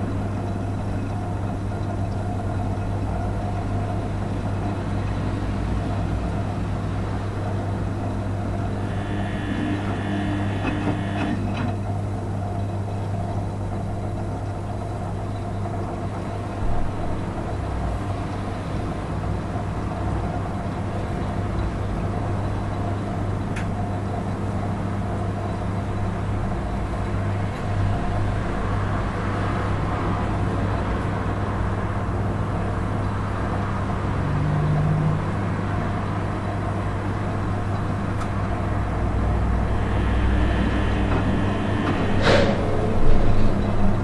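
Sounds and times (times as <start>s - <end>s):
washing machine motor humming: 0.0s - 15.9s, 36.7s - 44.0s.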